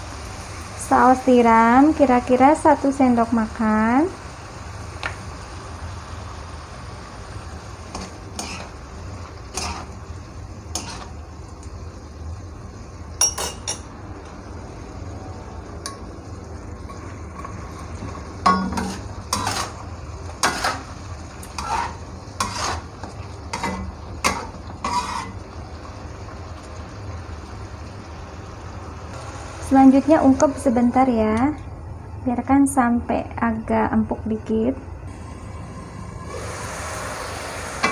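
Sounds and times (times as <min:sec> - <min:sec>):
steady low hum: 0:00.0 - 0:37.9
metal spatula scraping a wok: 0:07.9 - 0:10.0, 0:10.7 - 0:11.2, 0:16.9 - 0:25.5.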